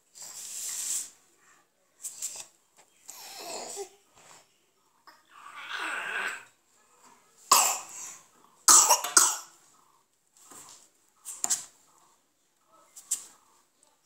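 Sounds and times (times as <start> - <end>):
toddler coughing: 7.5 - 8.1, 8.7 - 9.6.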